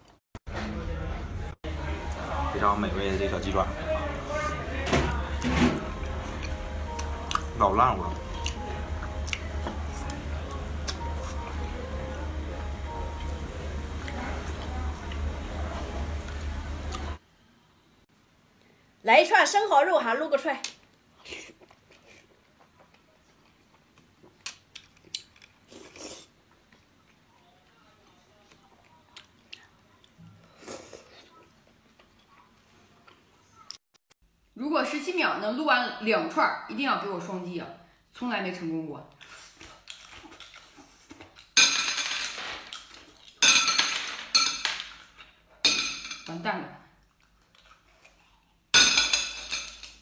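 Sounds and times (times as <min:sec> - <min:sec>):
mouth and chewing noises: 0:06.0 - 0:07.5, 0:08.3 - 0:10.2, 0:21.2 - 0:33.8, 0:39.1 - 0:41.6, 0:47.0 - 0:48.7
mouth biting sounds: 0:06.4 - 0:07.5.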